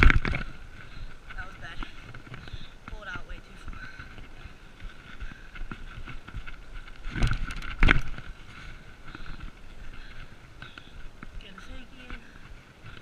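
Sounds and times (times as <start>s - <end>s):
bike rattling on dirt trail: 0.0s - 13.0s
bike jolting over bumps: 3.9s - 10.9s.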